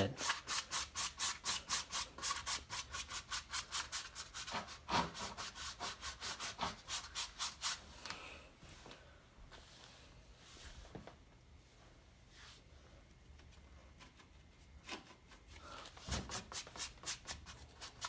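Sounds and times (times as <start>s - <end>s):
paint applicator scrubbing canvas: 0.1s - 7.8s.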